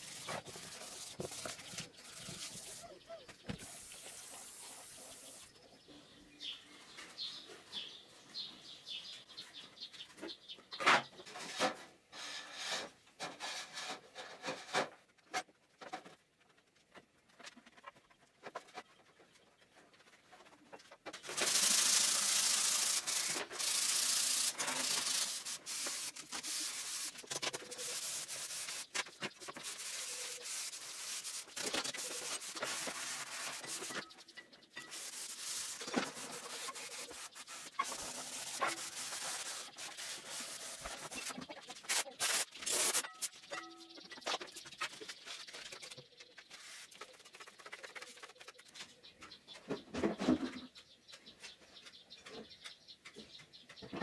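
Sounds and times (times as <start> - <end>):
sandpaper rubbing on a surface: 0.0 - 2.9, 21.2 - 34.2, 34.8 - 43.3, 44.8 - 48.8.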